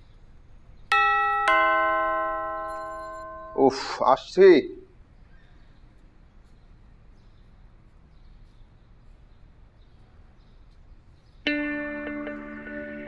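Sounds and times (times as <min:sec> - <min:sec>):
music with plucked tones: 0:11.5 - 0:13.0.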